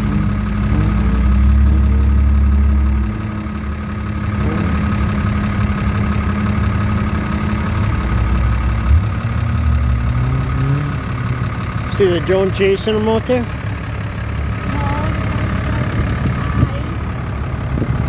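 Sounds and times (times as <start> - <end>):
vehicle engine idling: 0.0 - 18.0
short bump: 8.9 - 9.2.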